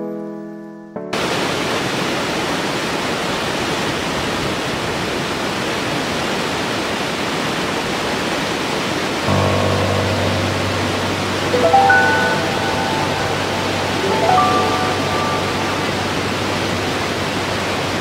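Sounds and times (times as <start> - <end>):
waterfall rushing: 1.2 - 18.0
background music with held notes: 9.3 - 18.0.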